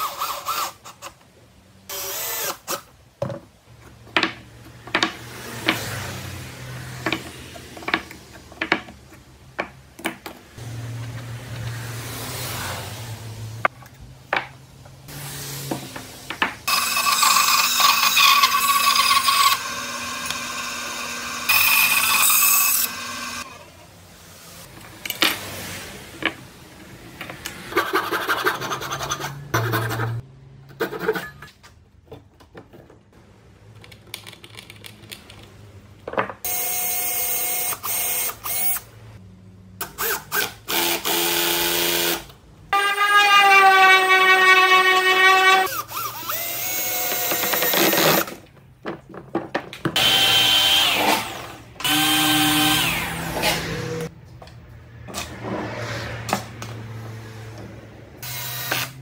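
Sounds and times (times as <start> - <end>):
power tool running: 16.7 - 23.6, 50.0 - 54.1, 58.2 - 59.0.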